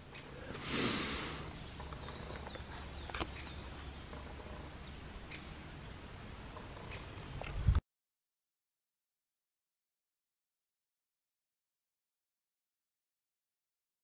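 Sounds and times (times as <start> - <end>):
rustle: 0.0 - 7.8.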